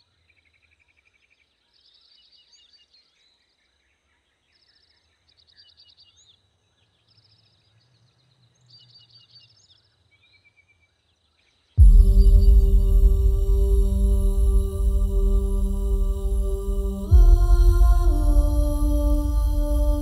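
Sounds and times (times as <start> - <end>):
low steady hum: 11.8 - 20.0.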